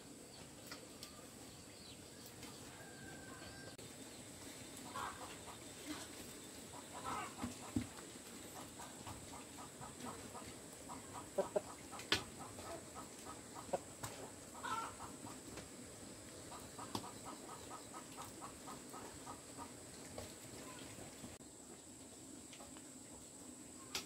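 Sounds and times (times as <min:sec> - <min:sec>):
hen clucking: 0:04.8 - 0:06.1, 0:06.7 - 0:15.7, 0:16.4 - 0:21.0.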